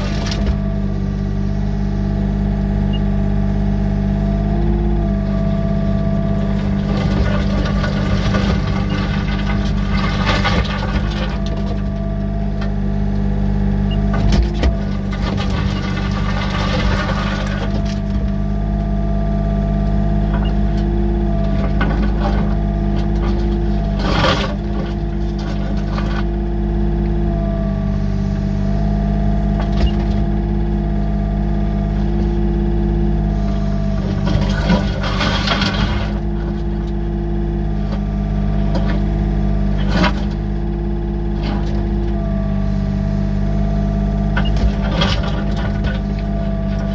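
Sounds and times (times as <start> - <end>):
diesel engine running: 0.0 - 46.9
bucket scraping over gravel: 6.3 - 12.1, 14.5 - 18.3, 21.4 - 26.3, 33.5 - 36.8, 44.4 - 46.9
hydraulic tone: 10.9 - 16.0, 17.7 - 25.0.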